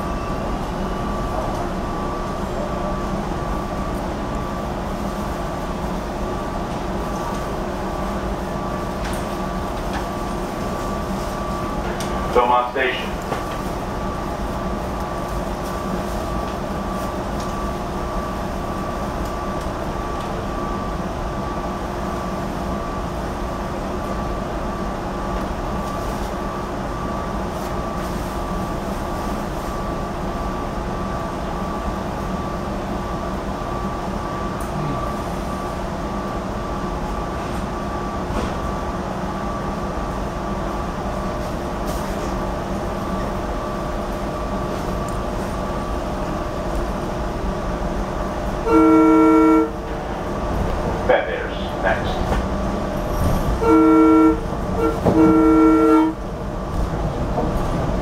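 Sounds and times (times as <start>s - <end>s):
railcar interior hum: 0.0s - 58.0s
train air horn blast: 48.6s - 49.8s, 53.6s - 56.2s.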